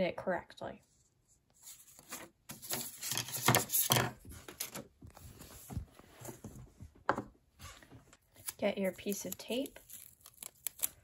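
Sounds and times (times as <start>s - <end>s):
paper rustling: 1.6s - 6.6s
paper crinkling: 7.7s - 11.0s.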